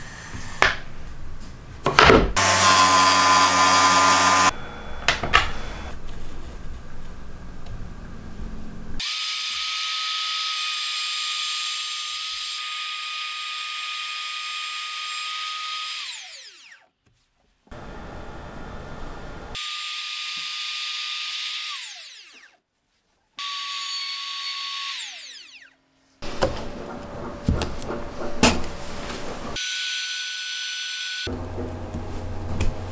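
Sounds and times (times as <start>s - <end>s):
trim router whining: 2.4s - 5.9s, 17.7s - 22.5s, 23.4s - 26.8s, 29.6s - 31.5s.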